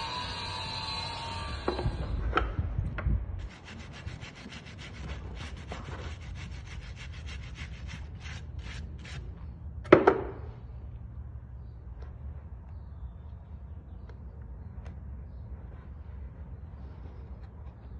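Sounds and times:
wooden stick scraping hoof: 3.4 - 9.3.

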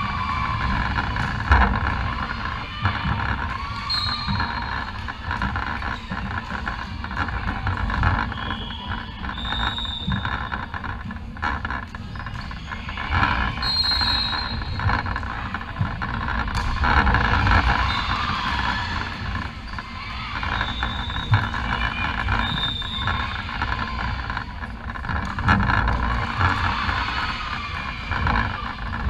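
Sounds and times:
indoor hall din: 0.0 - 29.0
sneakers squeaking: 0.0 - 29.0.

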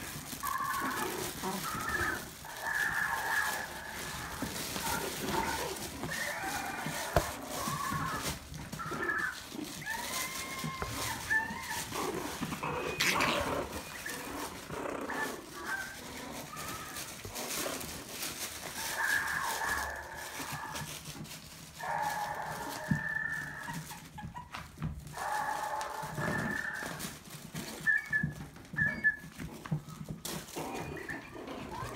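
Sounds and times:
puppies yipping and whining: 0.0 - 21.3, 22.0 - 31.9.

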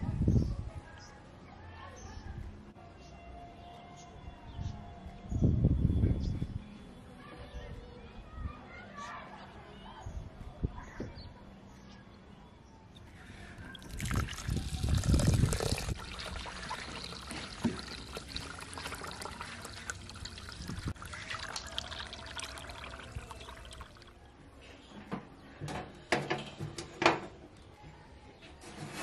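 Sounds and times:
tap water pouring into pot: 13.6 - 24.1.

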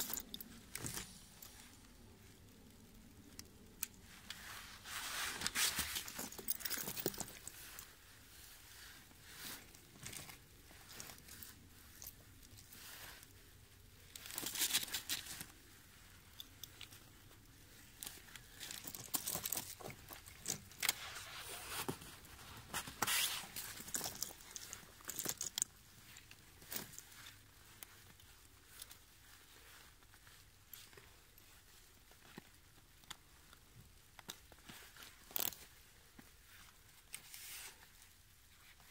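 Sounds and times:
chain links rattling: 0.0 - 1.0, 5.8 - 7.6.

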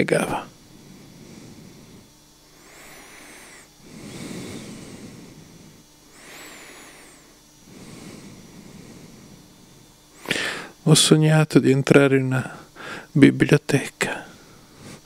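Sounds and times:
man breathing heavily in sleep: 0.6 - 10.8, 12.5 - 13.2, 14.2 - 15.0.

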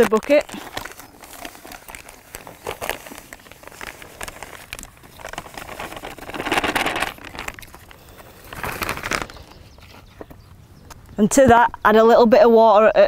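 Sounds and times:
bag crinkling and rustling: 0.0 - 10.3.

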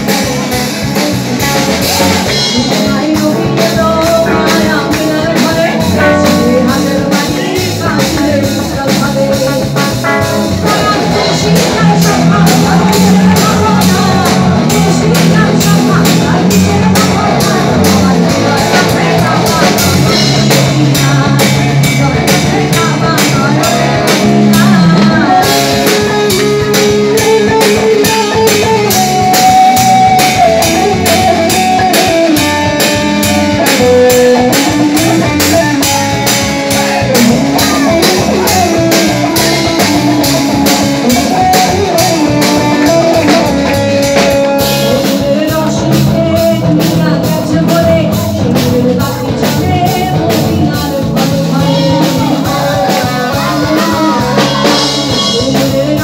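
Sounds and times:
electric guitar: 0.0 - 56.0
steady drum beat: 0.0 - 56.0
woman singing: 1.8 - 56.0.

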